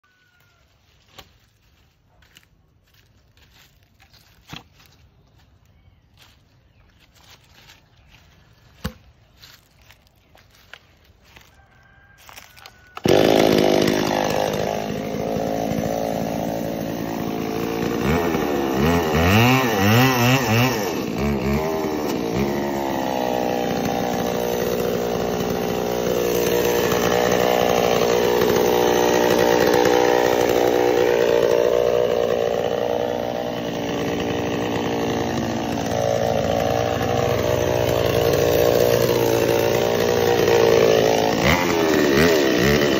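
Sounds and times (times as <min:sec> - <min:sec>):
chainsaw revving: 0:12.7 - 0:42.9.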